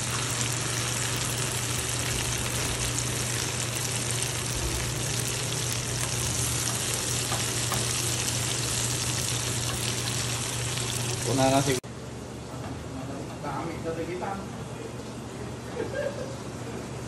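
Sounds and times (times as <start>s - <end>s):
food sizzling in hot oil: 0.0s - 11.8s.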